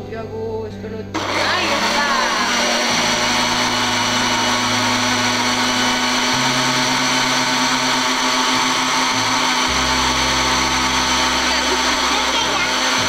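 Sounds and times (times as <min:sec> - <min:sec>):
electric blender running: 0:01.2 - 0:13.0.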